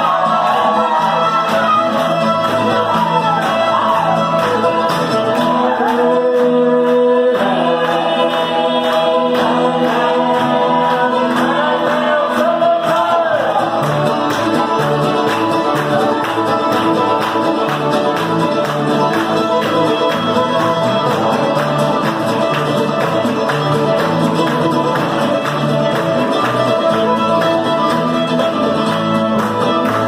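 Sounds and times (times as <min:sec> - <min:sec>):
fiddles playing melody: 0:00.0 - 0:06.4, 0:07.6 - 0:30.0
guitar accompaniment: 0:00.0 - 0:30.0.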